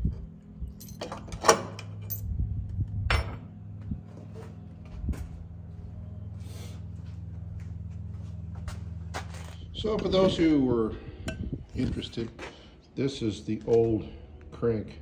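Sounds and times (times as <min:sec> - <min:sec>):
steady low hum: 0:00.0 - 0:15.0
metal tools clanking: 0:00.7 - 0:02.3.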